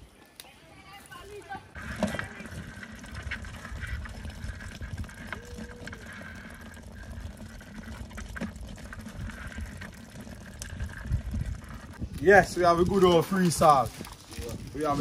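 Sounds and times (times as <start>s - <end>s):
water running and trickling: 10.6s - 15.0s.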